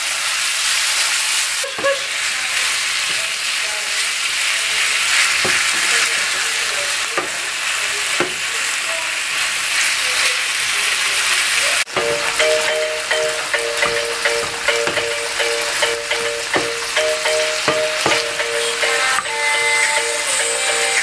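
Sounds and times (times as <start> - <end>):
chicken sizzling in a frying pan: 0.0 - 21.0
wooden spoon stirring: 11.9 - 19.3
background music with steady beat: 11.9 - 21.0.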